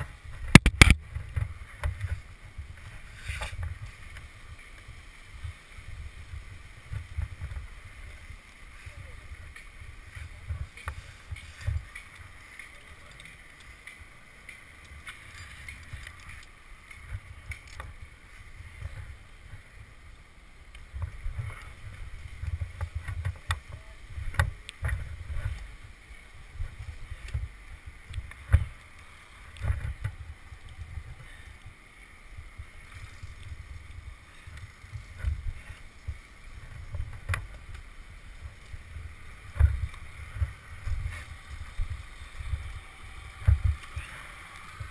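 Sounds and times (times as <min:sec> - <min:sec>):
microphone handling noise: 0:00.0 - 0:02.3
climbing gear clicks: 0:06.9 - 0:19.8, 0:20.7 - 0:44.9.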